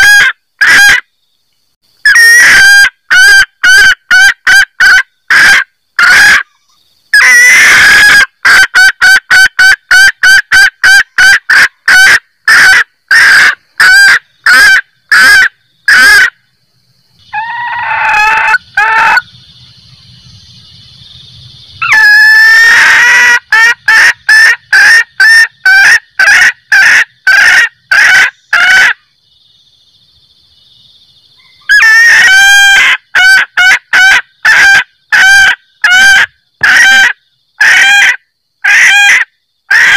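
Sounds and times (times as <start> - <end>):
hen cackling: 0.0 - 1.0, 2.0 - 16.4, 17.2 - 19.4, 21.8 - 29.0, 31.4 - 39.9
hen clucking: 7.2 - 16.3, 21.8 - 29.0.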